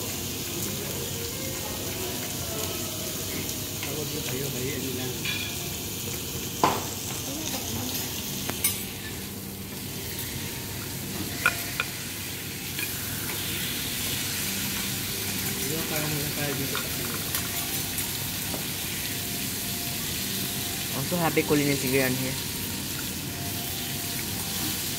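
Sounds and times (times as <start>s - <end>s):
steaks sizzling on a griddle: 0.0s - 24.9s
spatula and knife clinking on metal: 8.6s - 9.2s.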